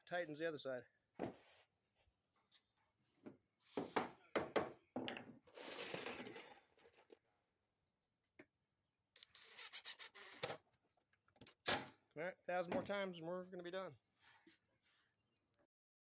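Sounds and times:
sharp knocks on deck boards: 0:03.8 - 0:05.3
rough scraping rustle: 0:05.5 - 0:06.7.

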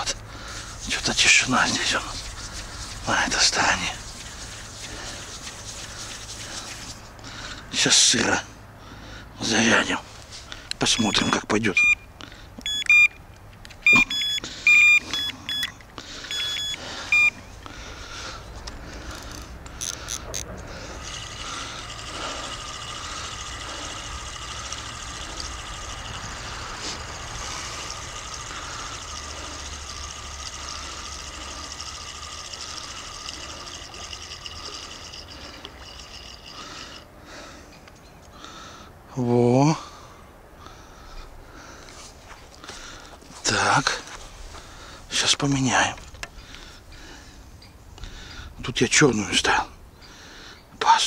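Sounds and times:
bite alarm short high beeps: 0:10.9 - 0:13.2, 0:13.8 - 0:17.5.

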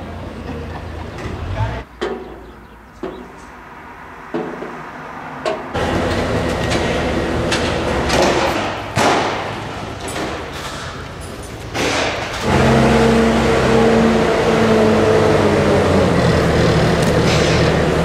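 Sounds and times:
loader diesel engine running: 0:05.8 - 0:18.0.

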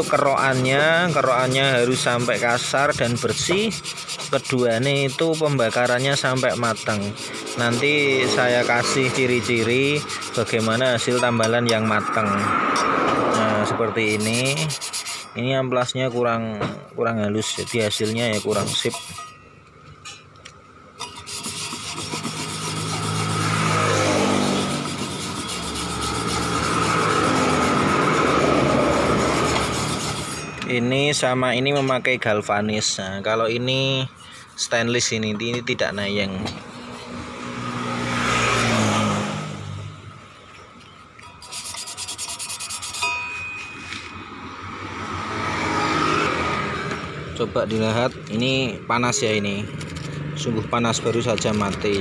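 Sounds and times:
sandpaper scraping metal plate: 0:00.0 - 0:12.6, 0:13.4 - 0:15.4, 0:17.3 - 0:19.3, 0:21.0 - 0:30.6, 0:34.1 - 0:35.2, 0:41.4 - 0:43.1, 0:51.1 - 0:52.0.

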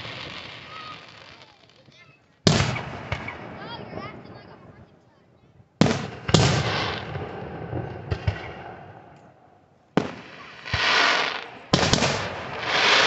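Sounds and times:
firework hiss: 0:00.0 - 0:01.8, 0:06.5 - 0:07.1, 0:10.1 - 0:13.0
fireworks bangs: 0:00.0 - 0:05.2, 0:05.8 - 0:09.2, 0:09.9 - 0:13.0.

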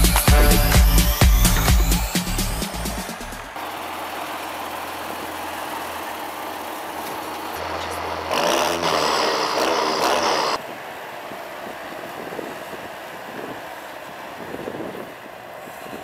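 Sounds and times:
tractor diesel engine running: 0:00.0 - 0:15.6
quieter tractor rumble: 0:03.2 - 0:16.0.

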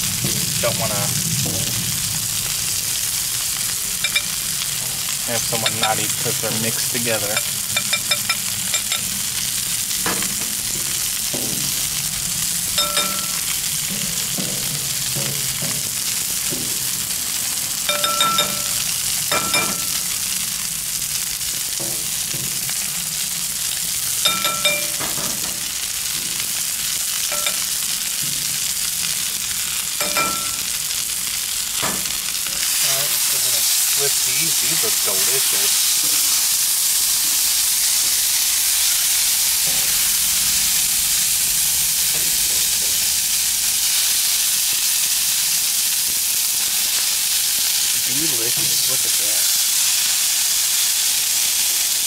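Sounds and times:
food sizzling on a griddle: 0:00.0 - 0:52.0
tongs clinking: 0:04.0 - 0:04.4, 0:05.4 - 0:06.2, 0:07.2 - 0:09.1, 0:12.8 - 0:13.6, 0:17.9 - 0:20.1, 0:24.2 - 0:25.6, 0:27.2 - 0:27.8, 0:30.0 - 0:30.8.

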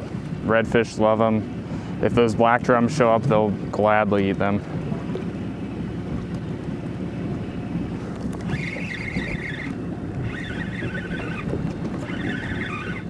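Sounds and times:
sea noise: 0:00.0 - 0:13.0
wind on microphone: 0:06.0 - 0:13.0
fishing reel whirring: 0:08.3 - 0:13.0.

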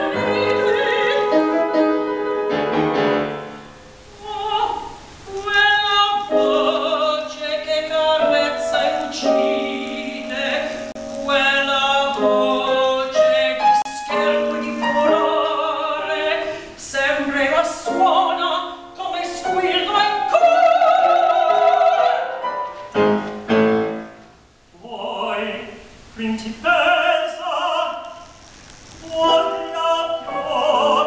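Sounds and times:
woman singing opera: 0:00.0 - 0:02.2, 0:04.1 - 0:22.4, 0:24.7 - 0:28.3, 0:29.0 - 0:31.0
piano accompaniment: 0:00.0 - 0:04.4, 0:05.3 - 0:16.7, 0:17.4 - 0:24.5.

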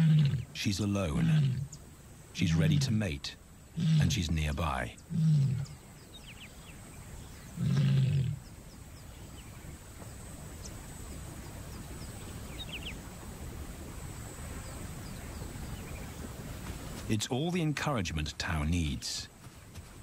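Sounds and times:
lioness low call: 0:00.0 - 0:01.8, 0:02.4 - 0:05.8, 0:07.4 - 0:08.5.

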